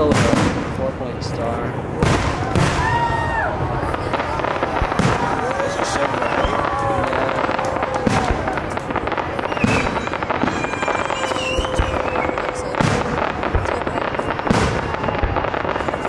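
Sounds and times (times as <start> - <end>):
firework shells bursting with bangs: 0.0 - 0.9, 1.9 - 16.0
fireworks crackling: 0.0 - 16.0.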